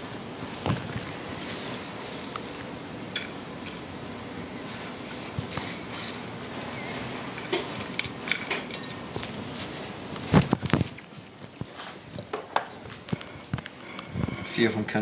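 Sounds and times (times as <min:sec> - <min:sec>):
utensils clinking against dishes: 0:03.1 - 0:03.9, 0:07.3 - 0:09.1, 0:13.8 - 0:15.0.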